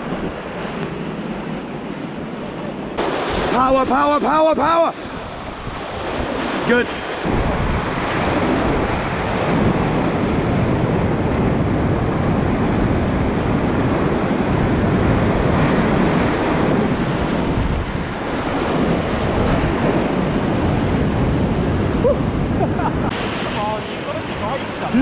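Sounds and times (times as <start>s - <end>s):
wind buffeting microphone: 0.0s - 25.0s
whitewater rapids rushing: 2.6s - 10.0s, 23.0s - 25.0s.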